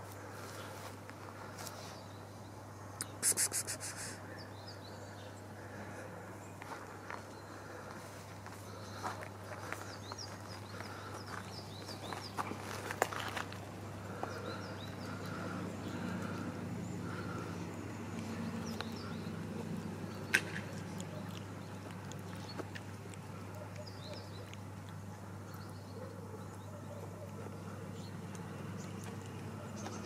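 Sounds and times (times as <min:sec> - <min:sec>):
cat chewing food: 0:06.6 - 0:30.0.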